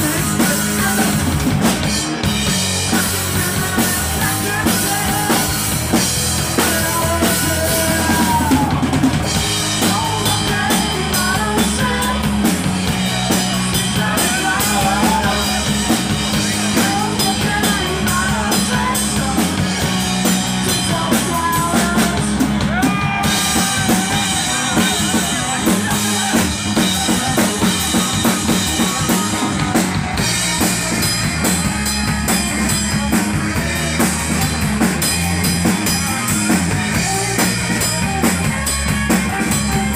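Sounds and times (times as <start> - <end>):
drum kit and cymbals: 0.0 - 39.9
rock band playing live: 0.0 - 39.9.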